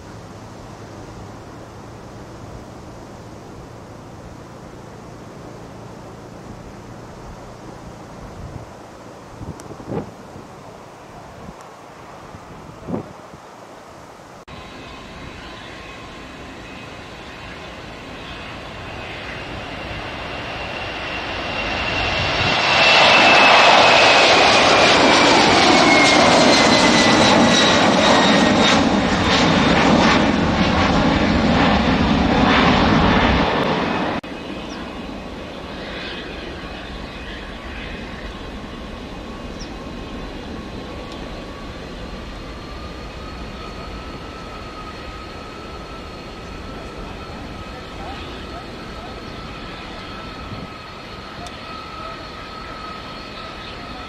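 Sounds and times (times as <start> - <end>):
jet engine whine: 0.0 - 54.0
jet taking off roar: 14.5 - 54.0.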